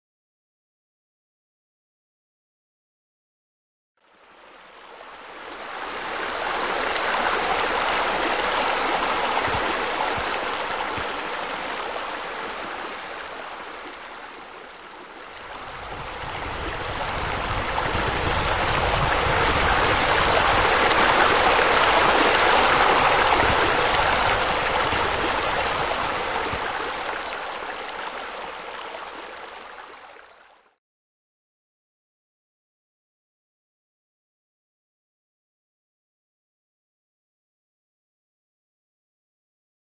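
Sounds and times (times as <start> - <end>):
water rushing: 4.0 - 30.8.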